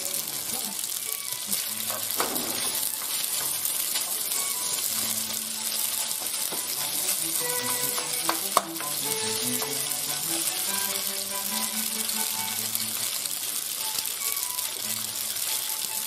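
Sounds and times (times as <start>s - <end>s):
pasta sizzling in oil: 0.0s - 16.0s
soft background music: 0.0s - 16.0s
wooden spoon stirring: 2.8s - 12.4s.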